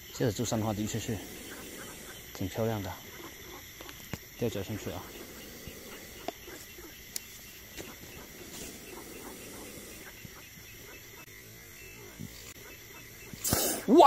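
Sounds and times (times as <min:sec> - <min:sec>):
steady high drone: 0:00.0 - 0:13.4
soft ticks and clicks: 0:06.2 - 0:08.0.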